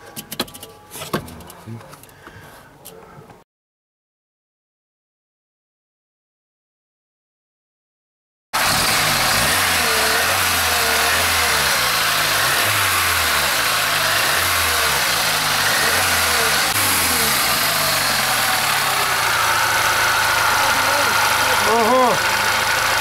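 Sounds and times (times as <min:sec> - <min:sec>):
car engine idling: 0:08.6 - 0:23.0.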